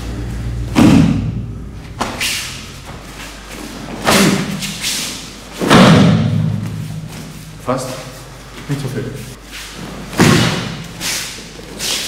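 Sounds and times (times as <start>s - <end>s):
bodies thumping on training mat: 5.6s - 7.3s, 10.1s - 10.9s.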